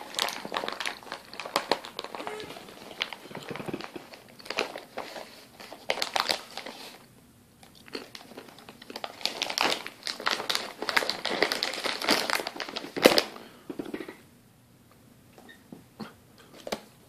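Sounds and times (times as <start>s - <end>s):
plastic bag crinkling: 0.0s - 7.0s, 7.7s - 13.4s.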